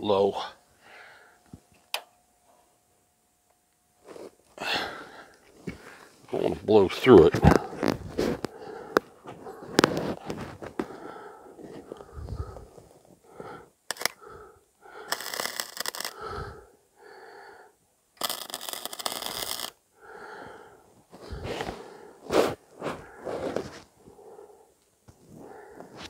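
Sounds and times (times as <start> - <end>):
welding arc crackling: 13.9 - 14.2, 15.0 - 16.3, 18.2 - 19.8.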